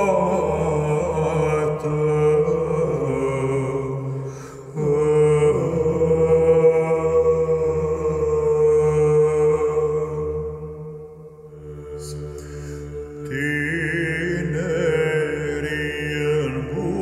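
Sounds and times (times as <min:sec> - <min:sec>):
low sung drone: 0:00.0 - 0:17.0.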